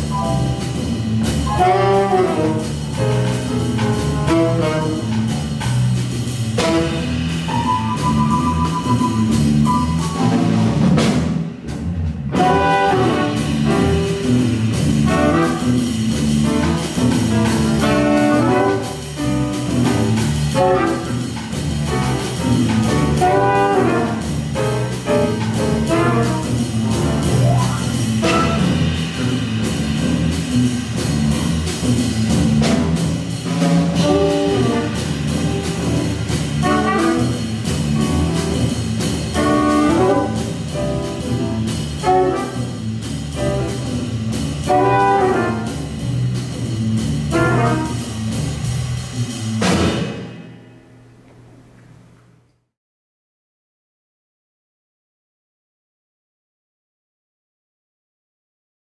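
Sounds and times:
saxophones and trumpet melody: 0.0s - 5.6s, 6.5s - 10.6s, 12.3s - 29.6s, 33.7s - 49.3s
bass guitar: 0.0s - 50.2s
drum kit with cymbals: 0.0s - 51.3s
piano: 0.0s - 52.2s.

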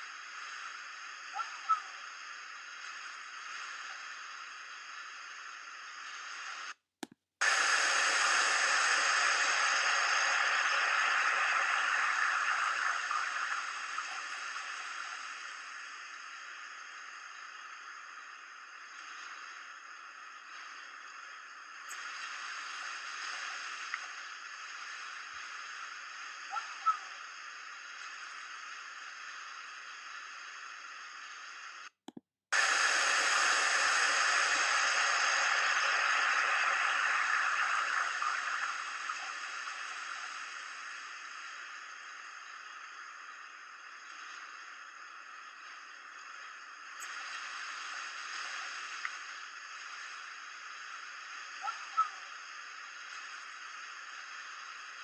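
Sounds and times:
static-like hissing: 0.0s - 6.8s, 7.4s - 55.0s.

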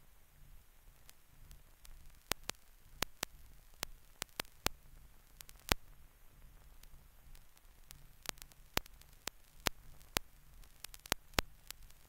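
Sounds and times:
faint low hum and hiss: 0.0s - 12.0s
film crackle clicks and pops: 0.0s - 12.0s.

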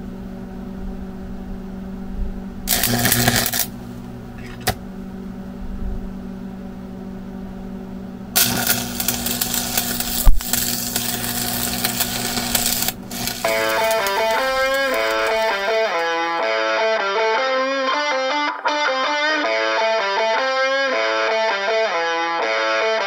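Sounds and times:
welding arc crackling: 2.7s - 4.8s, 8.4s - 16.2s
guitar music: 10.5s - 23.0s.

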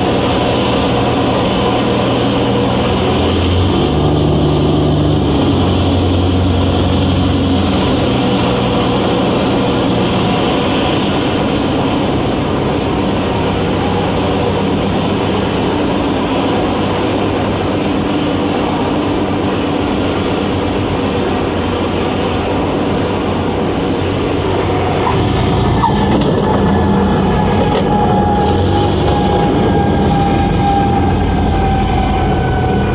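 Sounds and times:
propeller engine running: 0.0s - 32.9s.

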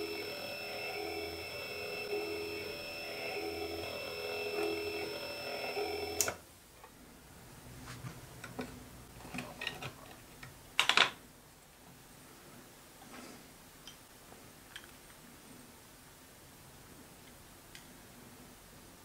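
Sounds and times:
lathe motor and gear whine: 0.0s - 6.3s.

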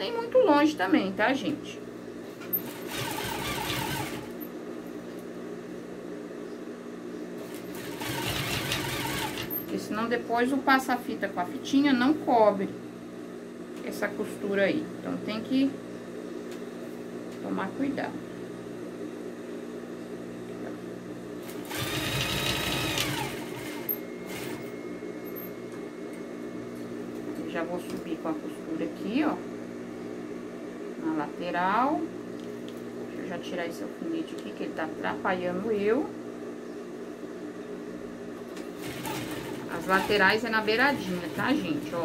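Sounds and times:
steady low hum: 0.0s - 42.0s
sewing machine running: 2.6s - 4.4s, 7.4s - 9.7s, 21.4s - 24.7s, 38.6s - 42.0s.

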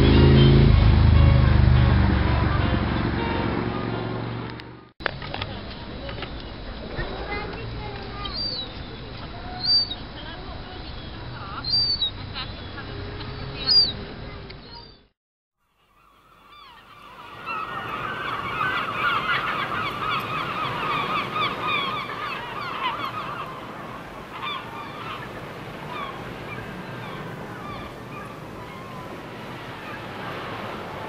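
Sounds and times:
flock of birds calling: 6.0s - 15.0s, 15.8s - 31.0s
background rush: 16.8s - 31.0s.

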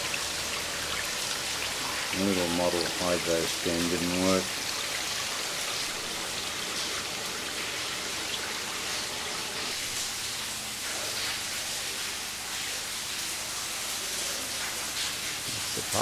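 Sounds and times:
steady hiss: 9.4s - 16.0s.

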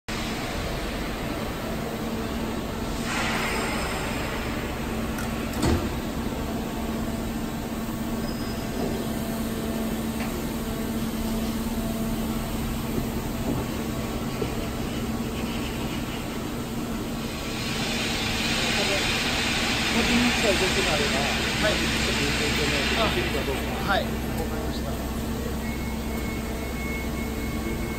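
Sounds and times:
lathe humming: 6.0s - 27.9s.

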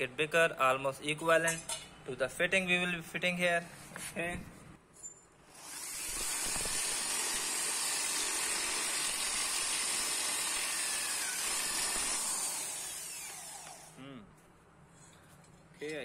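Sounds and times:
electric drill cutting metal: 5.5s - 14.0s.

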